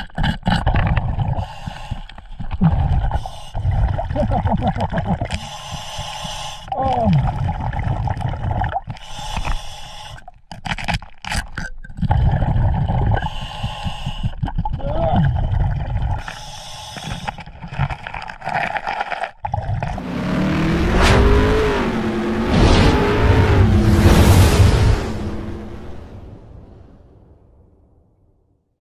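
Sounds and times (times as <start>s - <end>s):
underwater water bubbling: 0.0s - 20.0s
scraping and clicks against rock: 10.2s - 12.0s, 16.2s - 20.0s.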